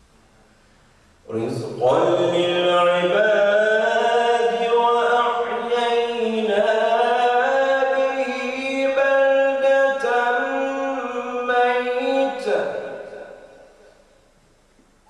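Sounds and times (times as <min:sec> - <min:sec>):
man chanting melodic recitation: 0:01.3 - 0:13.7.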